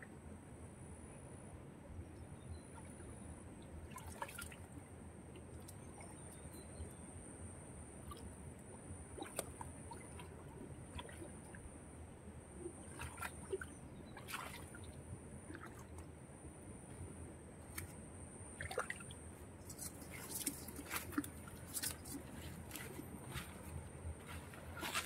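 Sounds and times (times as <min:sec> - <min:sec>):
hands sloshing in muddy water: 0:09.2 - 0:11.6, 0:12.7 - 0:16.0, 0:18.6 - 0:25.0.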